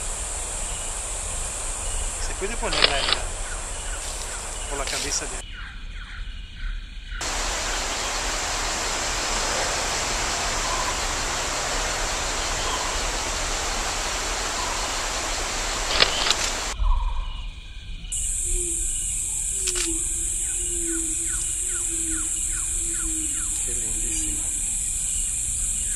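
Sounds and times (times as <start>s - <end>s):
river rushing: 0.0s - 5.4s, 7.2s - 16.8s
high insect-like hum: 0.0s - 25.9s
sharp click: 2.7s - 3.2s, 15.9s - 16.5s.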